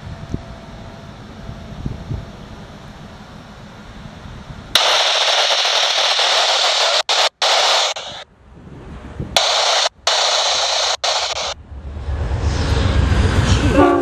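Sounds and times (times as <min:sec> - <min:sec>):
radio static hiss: 0:04.8 - 0:08.2, 0:09.4 - 0:11.6.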